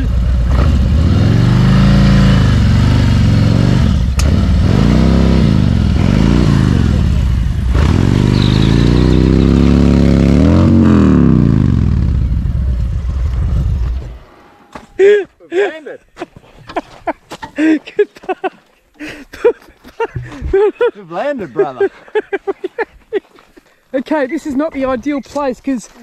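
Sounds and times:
motorcycle engine revving: 0:00.0 - 0:14.7.

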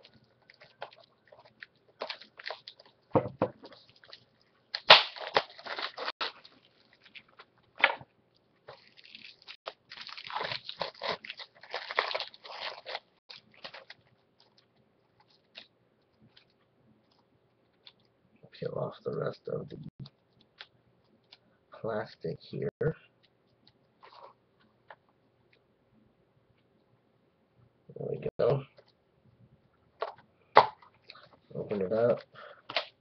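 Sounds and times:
plastic wrap crinkling: 0:00.0 - 0:18.1.

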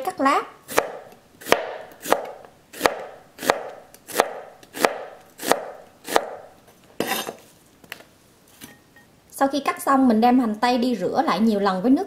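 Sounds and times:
knife slicing onion rustle: 0:00.7 - 0:06.4.

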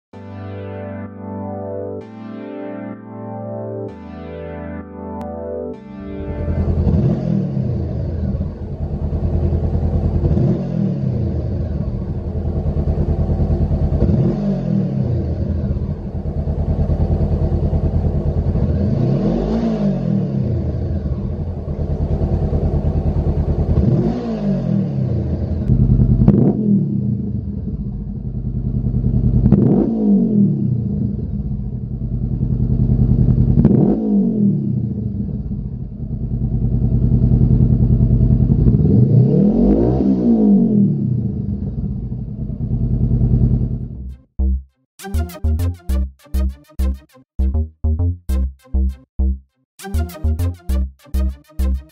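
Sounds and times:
motorcycle engine revving: 0:06.3 - 0:44.5.

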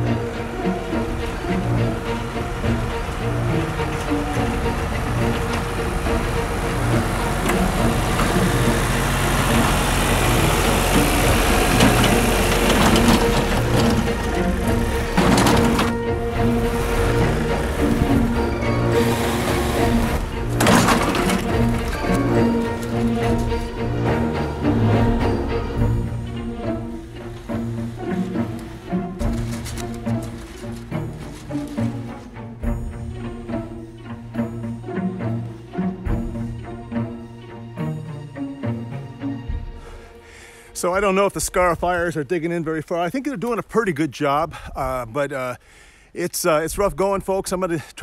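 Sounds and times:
tractor engine running: 0:00.0 - 0:37.4
background music with bass line: 0:00.0 - 0:42.1
machine knocks and clanks: 0:02.1 - 0:16.6, 0:17.2 - 0:23.7.

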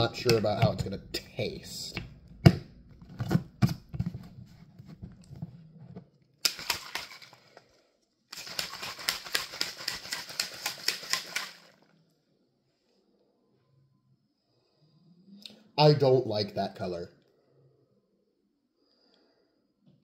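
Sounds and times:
shaker cup rattling: 0:06.5 - 0:07.5, 0:08.3 - 0:11.8.

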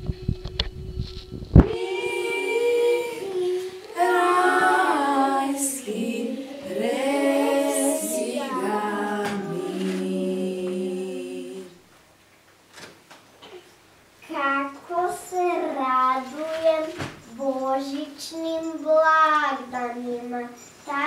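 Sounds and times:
voices singing unaccompanied: 0:00.0 - 0:11.9.

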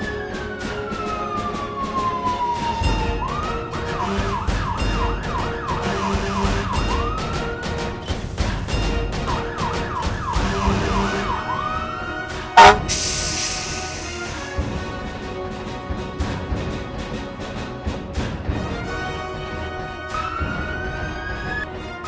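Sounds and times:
emergency siren wailing and yelping: 0:00.0 - 0:07.9, 0:09.3 - 0:14.3.

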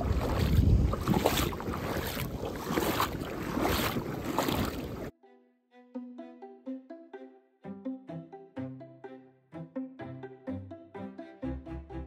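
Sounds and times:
feet splashing through water: 0:00.0 - 0:05.1.

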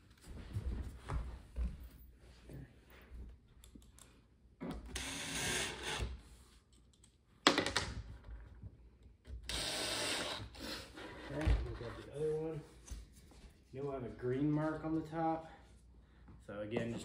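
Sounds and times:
cordless drill driving screws: 0:04.9 - 0:06.0, 0:09.4 - 0:10.8.

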